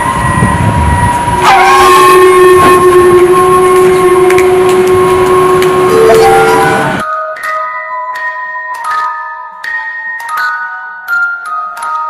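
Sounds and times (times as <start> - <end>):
horn-like blare: 0.0 - 7.0.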